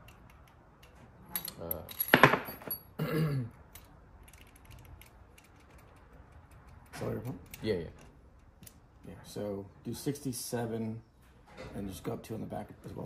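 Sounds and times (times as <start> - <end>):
small metal parts clinking: 0.0 - 3.0, 3.6 - 8.8.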